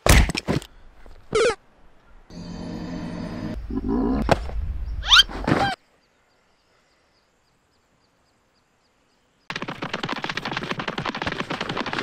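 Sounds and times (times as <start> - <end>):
fast rattle of sharp taps: 9.5 - 12.0.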